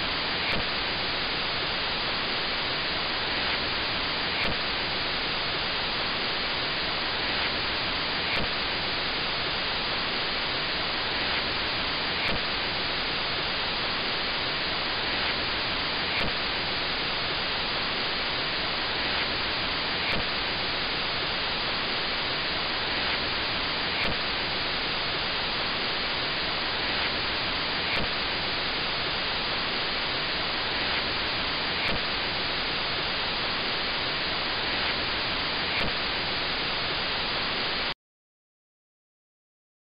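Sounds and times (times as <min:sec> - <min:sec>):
tv static hiss: 0:00.0 - 0:38.0
faint click: 0:00.5 - 0:00.7.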